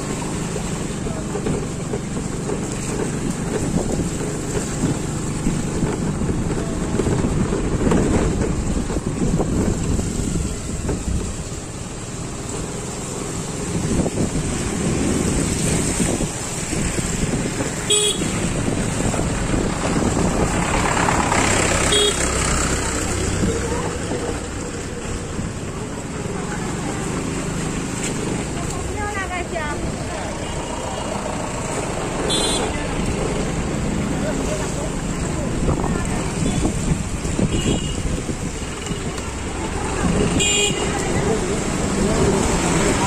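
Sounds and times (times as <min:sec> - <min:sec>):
road traffic: 0:00.0 - 0:43.0
vehicle horn beep: 0:17.9 - 0:18.4, 0:21.9 - 0:22.2, 0:32.3 - 0:32.7, 0:37.5 - 0:38.1, 0:40.4 - 0:40.9.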